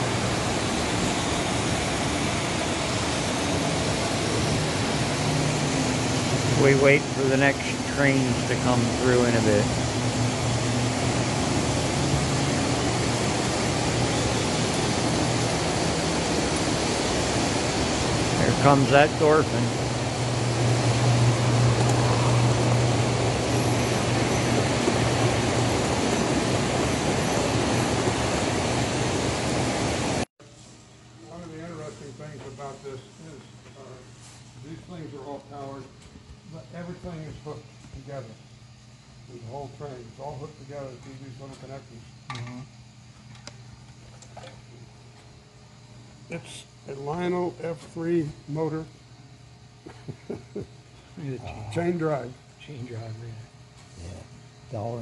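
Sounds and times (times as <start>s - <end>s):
model trains rolling rumble: 0.0s - 30.2s
low electric motor hum: 0.0s - 55.0s.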